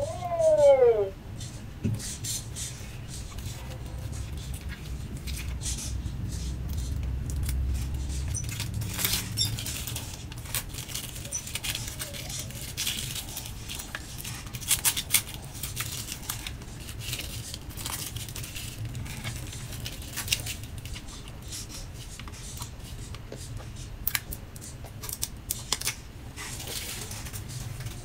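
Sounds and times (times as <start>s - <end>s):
fingers clicking and rustling plastic: 6.4s - 28.0s
plastic film crinkling: 8.3s - 21.4s.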